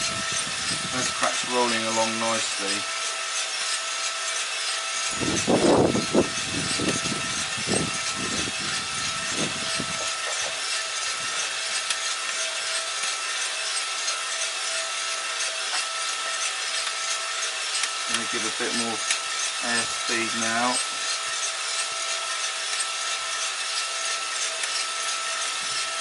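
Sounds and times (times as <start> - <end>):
coffee roaster fan rushing: 0.0 - 26.0.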